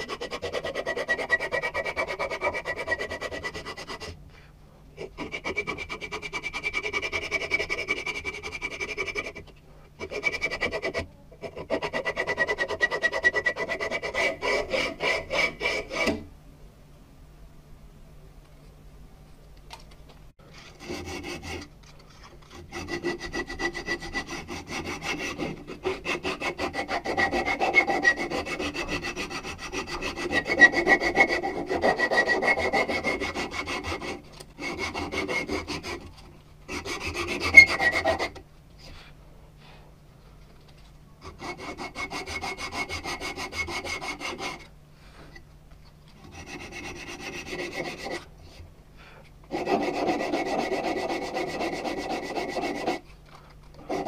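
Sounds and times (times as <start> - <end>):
abrasive cloth sanding wood: 0.0 - 4.1, 5.0 - 9.4, 10.0 - 16.2, 22.7 - 36.0, 36.7 - 38.4, 41.2 - 44.6, 46.3 - 48.2, 49.5 - 53.0.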